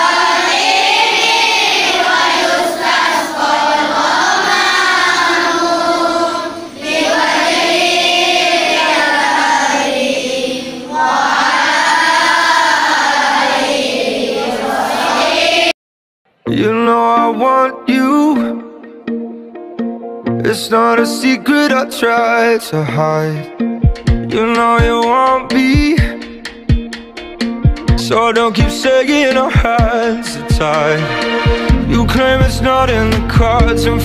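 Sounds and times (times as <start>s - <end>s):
children's choir singing: 0.0s - 15.8s, 28.0s - 33.7s
instrumental music: 16.4s - 34.0s.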